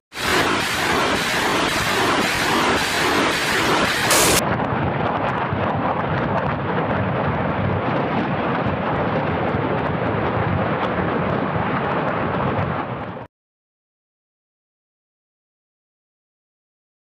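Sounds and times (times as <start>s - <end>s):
rockets launching with loud roar: 0.1s - 13.3s.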